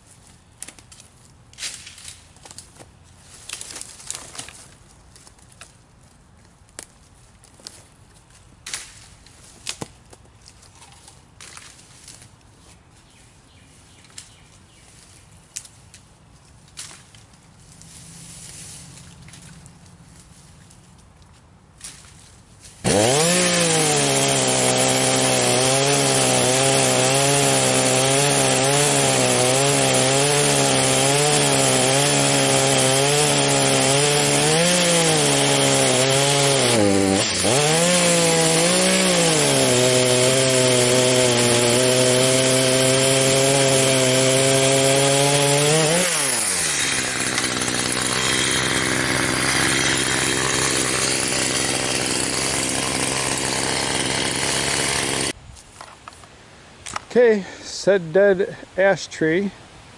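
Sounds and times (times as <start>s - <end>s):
chainsaw cutting log: 22.8s - 55.4s.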